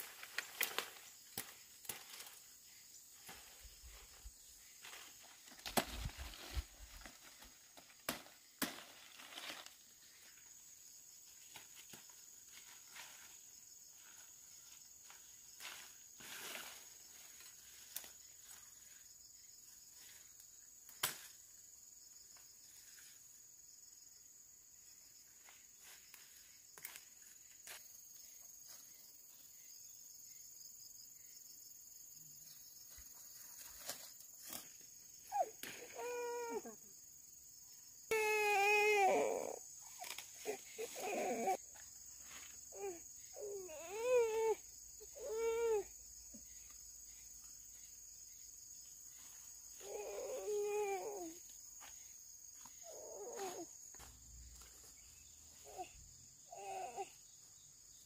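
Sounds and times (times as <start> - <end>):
branches snapping and rustling: 0.0 - 2.5, 4.8 - 9.9, 20.9 - 21.4, 33.6 - 34.8
feet moving through undergrowth: 0.0 - 10.6, 49.1 - 55.9
insects chirring: 0.0 - 58.0
baby whimpering: 35.3 - 36.8, 38.1 - 39.6, 40.4 - 41.6, 42.7 - 45.9, 49.8 - 51.4, 52.8 - 53.7, 55.6 - 57.2.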